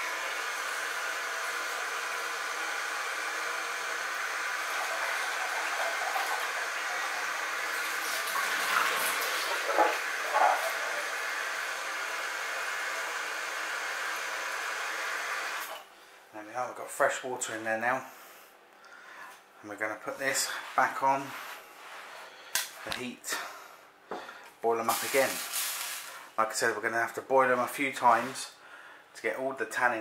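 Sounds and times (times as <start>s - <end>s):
water running into pan: 4.4s - 13.1s.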